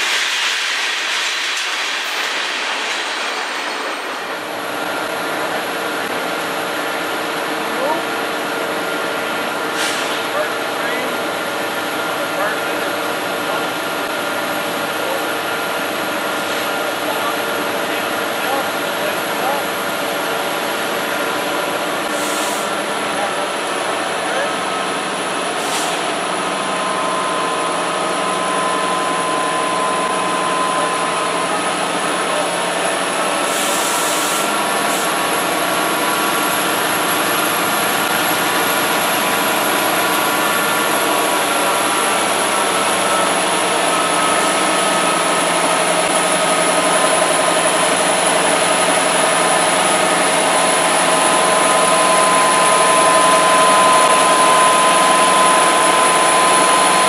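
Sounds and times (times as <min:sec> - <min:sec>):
locomotive engine and fan roar: 0:00.0 - 0:57.0.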